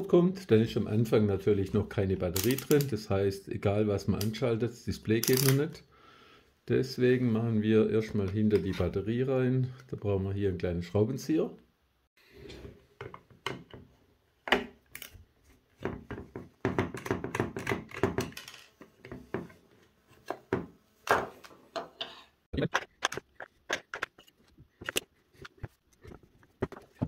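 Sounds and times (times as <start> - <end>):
plastic clicks and scrapes: 22.7 - 27.0.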